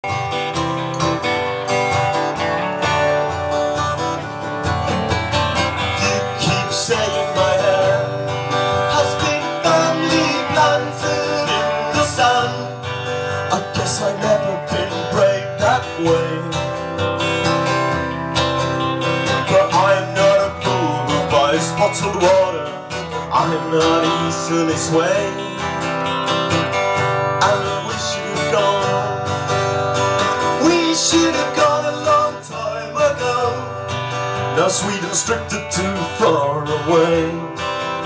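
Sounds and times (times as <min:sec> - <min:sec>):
acoustic guitars strumming chords: 0:00.0 - 0:38.0.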